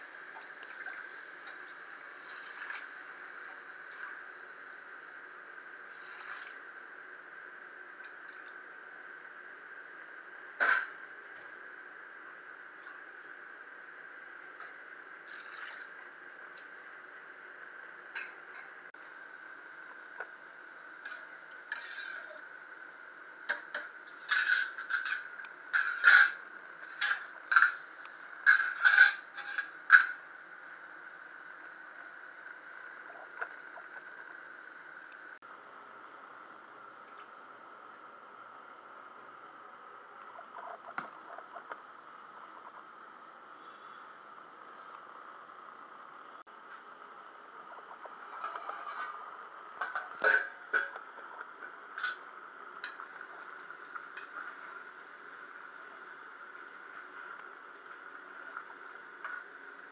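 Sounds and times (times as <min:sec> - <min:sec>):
spoon and lid clanking on pot: 0:49.8 - 0:51.0.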